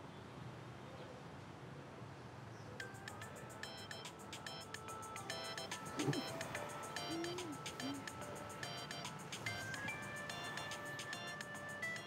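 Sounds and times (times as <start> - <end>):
even hiss: 3.0 - 12.0.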